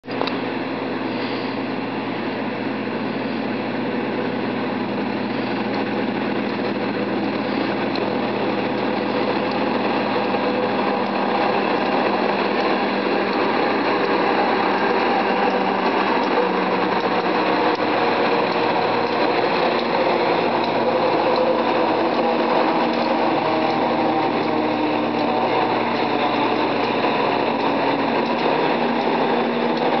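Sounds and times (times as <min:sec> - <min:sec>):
diesel locomotive passing: 0:00.1 - 0:30.0.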